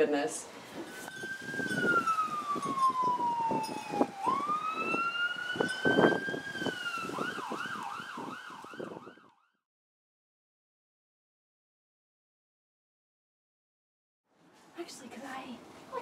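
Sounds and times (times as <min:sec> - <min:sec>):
emergency siren wailing and yelping: 0:00.8 - 0:09.6.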